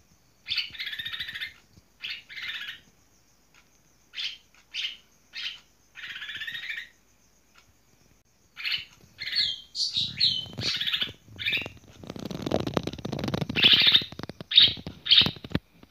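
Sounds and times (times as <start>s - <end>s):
bird calls and whistles: 0.4s - 2.8s, 4.2s - 6.9s, 8.6s - 12.4s, 13.4s - 15.6s.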